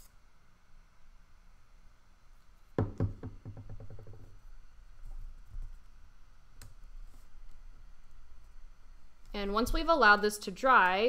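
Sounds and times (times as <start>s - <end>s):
wooden sticks knocking on table: 2.8s - 4.3s.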